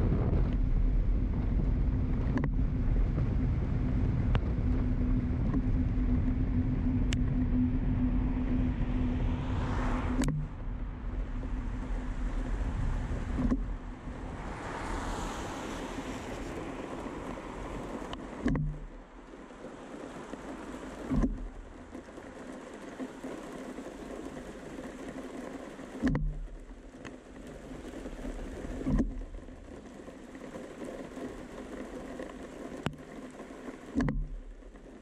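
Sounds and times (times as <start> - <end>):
steady low hum: 0.0 - 22.7
vehicle tyres on wet road: 0.0 - 35.0.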